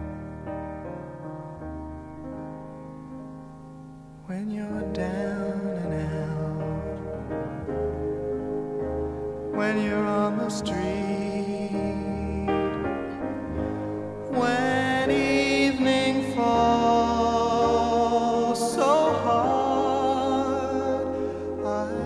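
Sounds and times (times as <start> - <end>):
piano: 0.0 - 22.0
person singing: 4.2 - 22.0.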